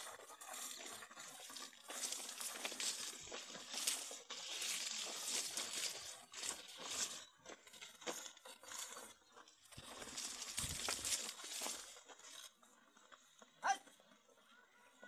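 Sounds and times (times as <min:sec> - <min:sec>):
maize leaves rustling and crunching: 0:00.0 - 0:12.5.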